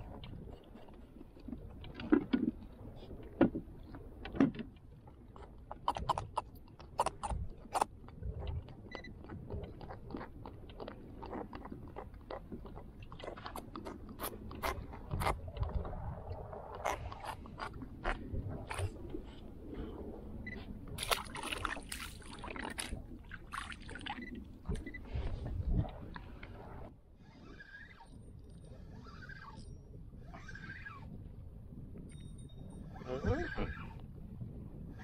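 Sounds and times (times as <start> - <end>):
clicks and knocks on plastic kayak: 1.4 - 4.8.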